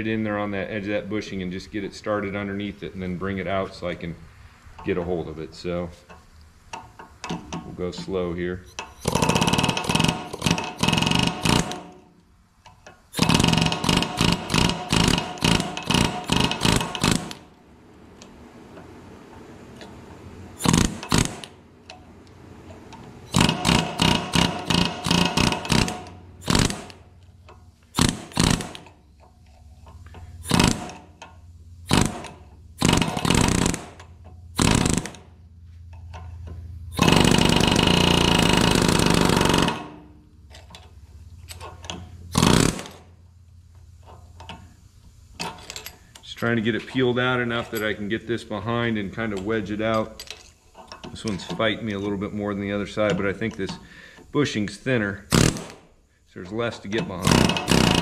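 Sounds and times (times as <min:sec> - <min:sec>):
pneumatic air hammer bursts: 0:08.7 - 0:12.1, 0:12.9 - 0:17.5, 0:20.6 - 0:21.6, 0:23.2 - 0:31.2, 0:31.8 - 0:35.4, 0:36.9 - 0:40.2, 0:41.5 - 0:43.2, 0:55.2 - 0:56.1, 0:57.1 - 0:58.0.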